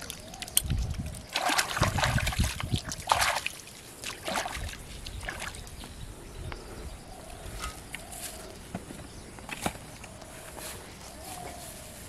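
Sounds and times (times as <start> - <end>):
water splashing by hand: 0.0 - 5.8.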